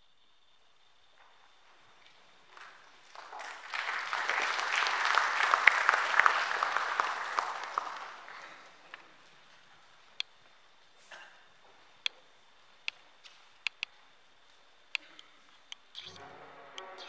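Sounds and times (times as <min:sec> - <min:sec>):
audience applauding: 0:02.6 - 0:09.1.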